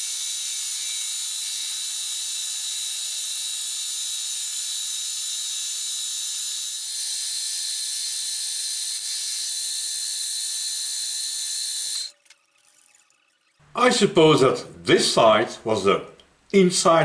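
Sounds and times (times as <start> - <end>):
milling cutter cutting steel: 0.0 - 12.5.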